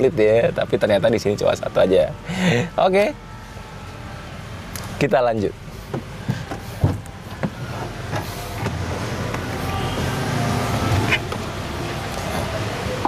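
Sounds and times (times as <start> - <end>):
car door knocking: 5.9 - 9.5.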